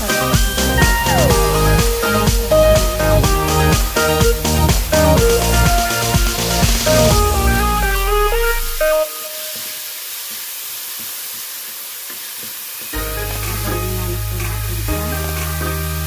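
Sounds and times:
electronic background music: 0:00.0 - 0:09.5, 0:13.0 - 0:16.0
onion and garlic sizzling in oil: 0:08.7 - 0:14.4.

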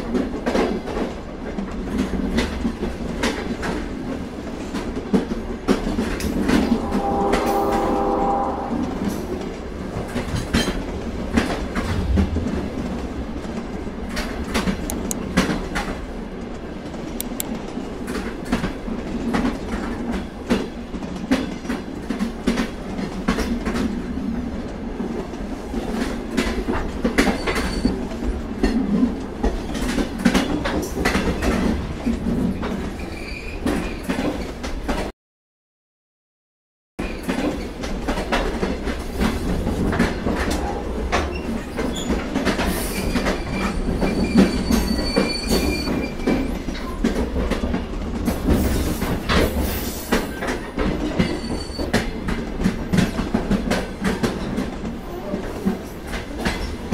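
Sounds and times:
freight train rumbling past: 0:00.0 - 0:35.1
brief pitched tone: 0:06.8 - 0:08.8.

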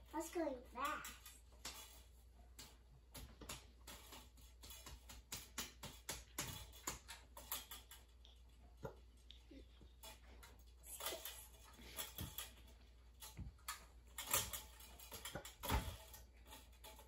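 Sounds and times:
plastic toys tapping on wood: 0:00.8 - 0:08.0.

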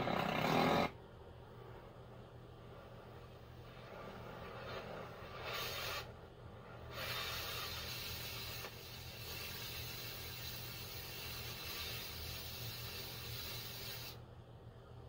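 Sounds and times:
cutting torch hissing: 0:03.6 - 0:14.2.

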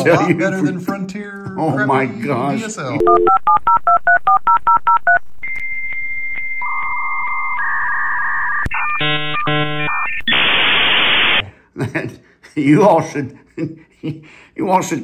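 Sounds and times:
touch-tone dialing beeps: 0:03.0 - 0:10.5
dial-up modem tones: 0:03.0 - 0:11.4.

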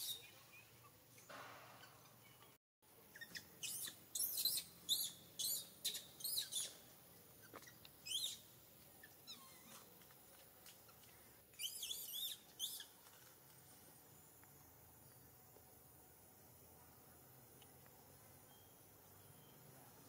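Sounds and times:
infant monkey squealing: 0:03.1 - 0:06.8, 0:07.6 - 0:08.4, 0:09.0 - 0:09.9, 0:11.6 - 0:12.9.

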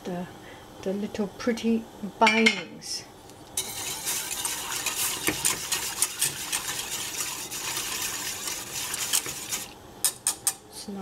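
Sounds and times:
whisk clattering in metal pan: 0:03.6 - 0:09.7.

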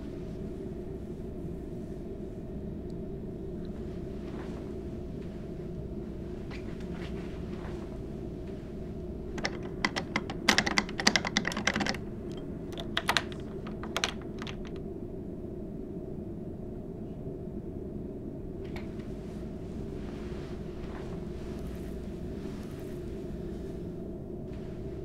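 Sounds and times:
low hum: 0:00.0 - 0:25.0
door lock metallic clicks: 0:09.4 - 0:14.8.

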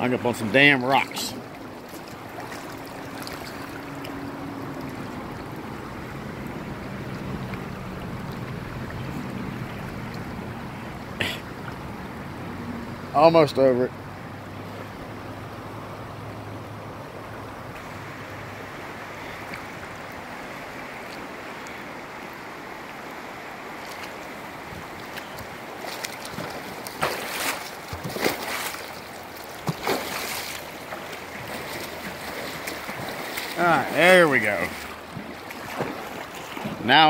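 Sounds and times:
river water rushing: 0:00.0 - 0:37.0
splashes and bumps: 0:00.3 - 0:05.0, 0:23.8 - 0:37.0.

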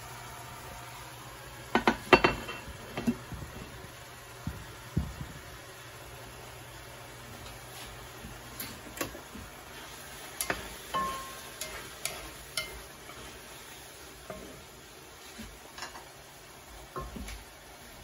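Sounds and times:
low sizzle: 0:00.0 - 0:18.0
utensils knocking against a pan: 0:01.7 - 0:03.3, 0:10.4 - 0:12.8.

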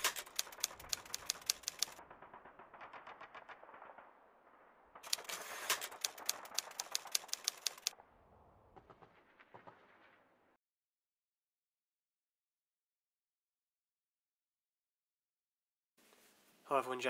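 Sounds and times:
typewriter key clicks: 0:00.0 - 0:02.0, 0:05.1 - 0:07.9.

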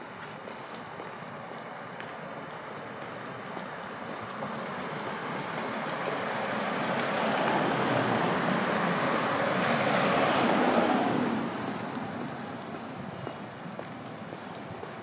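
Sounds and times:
vehicle passing close by: 0:04.4 - 0:12.6.

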